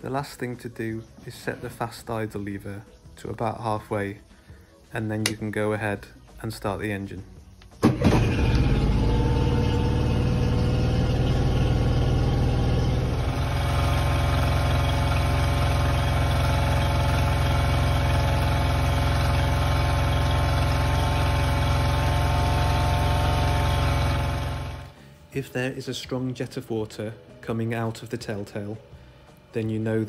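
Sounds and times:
outboard motor idling: 7.8s - 25.0s.

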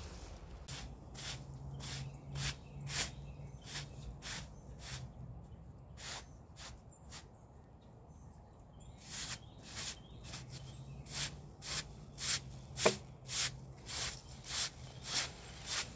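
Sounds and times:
broom sweeping over fabric: 9.0s - 15.9s.

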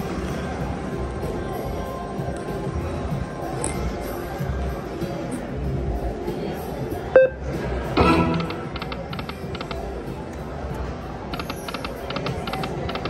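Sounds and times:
short beep: 7.2s - 7.4s
slot machine chime: 8.0s - 9.0s.

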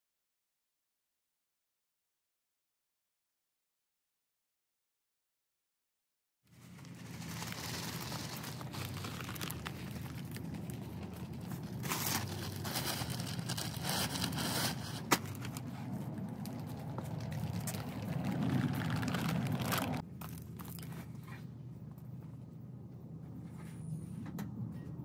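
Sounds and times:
plastic bag crinkling and tearing: 6.6s - 20.9s.

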